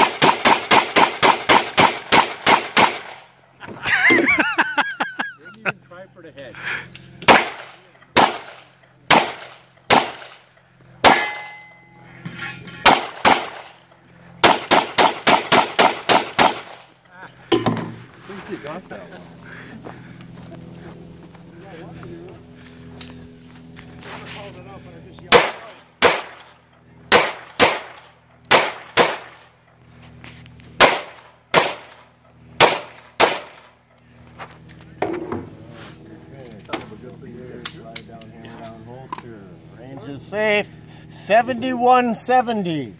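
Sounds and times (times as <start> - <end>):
pistol shots: 0.0 - 3.3, 7.2 - 11.6, 12.8 - 13.8, 14.4 - 16.9, 25.3 - 29.5, 30.8 - 33.7
steel target ringing: 11.0 - 12.6.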